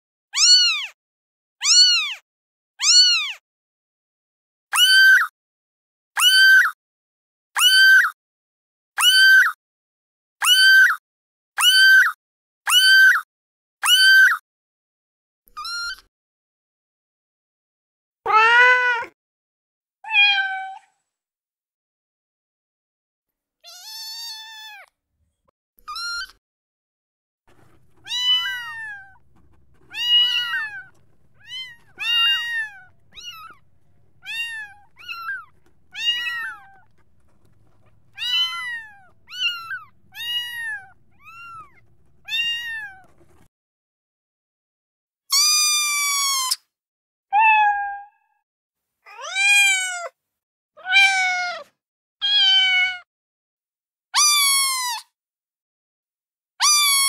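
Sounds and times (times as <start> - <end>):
kitten meows: 0.4 - 1.0, 1.6 - 2.2, 2.8 - 3.4, 4.7 - 5.3, 6.2 - 6.8, 7.6 - 8.2, 9.0 - 9.6, 10.4 - 11.0, 11.6 - 13.2, 13.8 - 14.4, 18.3 - 19.2, 20.0 - 20.9, 23.6 - 24.9, 25.9 - 26.4, 27.9 - 43.2, 45.3 - 46.6, 47.3 - 48.3, 49.1 - 50.2, 50.8 - 53.1, 54.2 - 55.1, 56.6 - 57.0.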